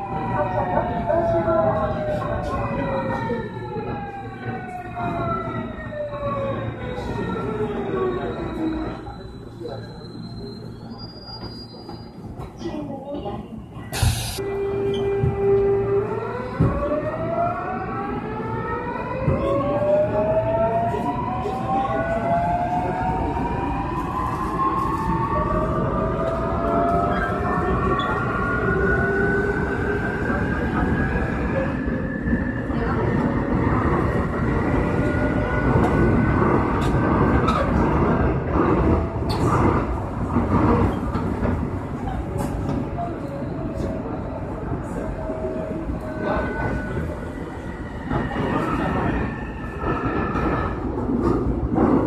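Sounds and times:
wheels rumbling on rails: 15.0 - 52.0.

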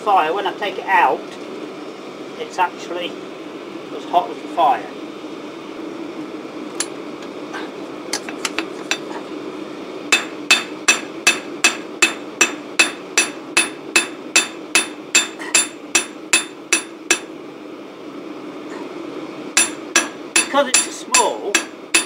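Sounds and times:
hammer ringing on hot steel: 10.1 - 17.3, 19.6 - 22.0.

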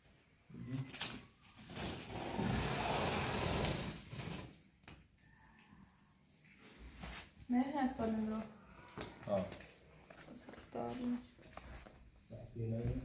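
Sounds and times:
packing tape tearing off cardboard: 0.7 - 5.1.

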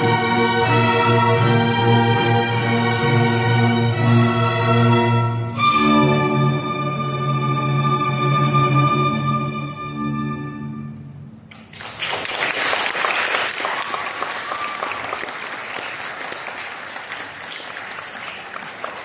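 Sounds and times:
string ensemble chord: 0.0 - 11.4
audience applause: 11.6 - 19.0.

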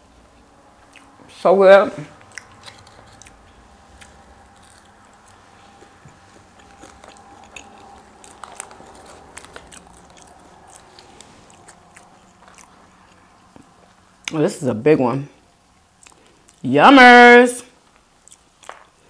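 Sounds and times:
person chewing food: 0.4 - 1.3, 2.0 - 14.3, 15.7 - 16.6, 17.8 - 19.0
faint food crunches: 2.1 - 14.4, 15.7 - 16.6, 17.8 - 19.0.

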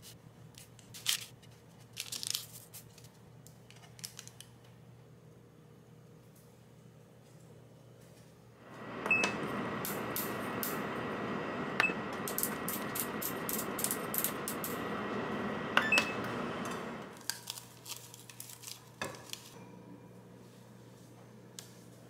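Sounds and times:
oven whirring: 8.6 - 17.2
oven button beeps: 8.8 - 11.0, 11.7 - 17.0.

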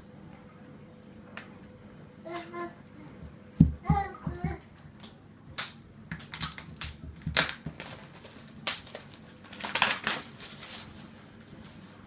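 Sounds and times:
plastic wrapping crinkling and tearing: 6.2 - 12.0.

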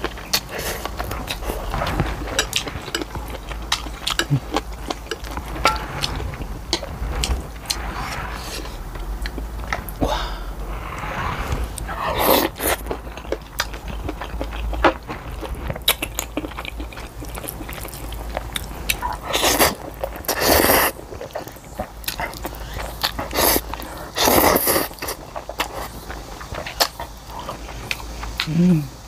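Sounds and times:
wet chewing clicks and smacks: 0.0 - 5.4, 12.5 - 28.6
slurping noodles: 0.0 - 26.0.

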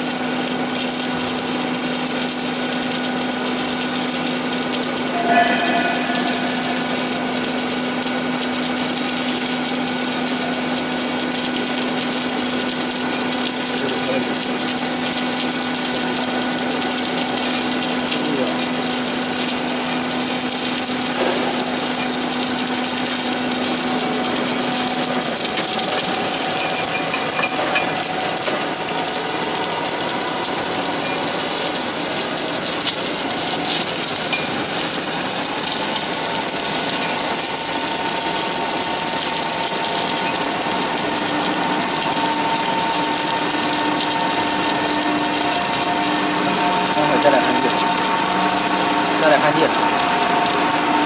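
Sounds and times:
welding machine hiss: 0.0 - 51.0
higher steady tones: 4.8 - 9.2, 20.2 - 35.5.

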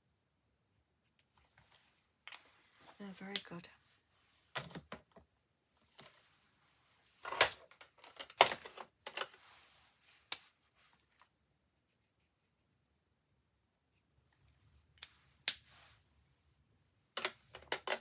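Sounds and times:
plastic marker pens clattering: 7.2 - 9.4, 17.1 - 18.0.

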